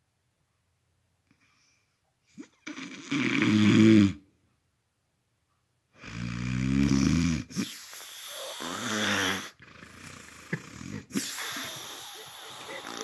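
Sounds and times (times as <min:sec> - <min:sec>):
man snoring loudly: 0:02.8 - 0:04.2, 0:06.0 - 0:13.0.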